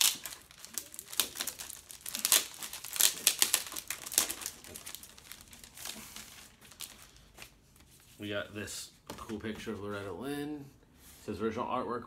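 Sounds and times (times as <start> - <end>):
record packaging crinkling: 0.0 - 7.9.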